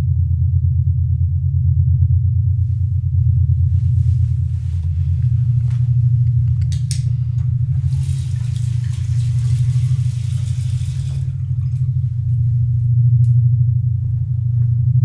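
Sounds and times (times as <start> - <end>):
steady deep rumble: 0.0 - 15.0
tap water running into sink: 7.7 - 12.0.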